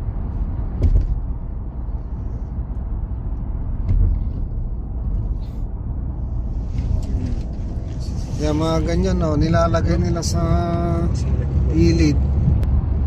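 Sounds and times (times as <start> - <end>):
car cabin road and engine rumble: 0.0 - 13.0.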